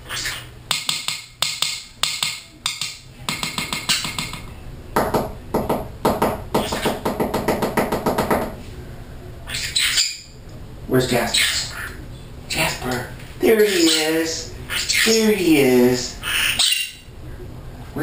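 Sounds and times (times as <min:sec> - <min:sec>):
parrot tapping beak on perch: 0:00.7 - 0:04.4.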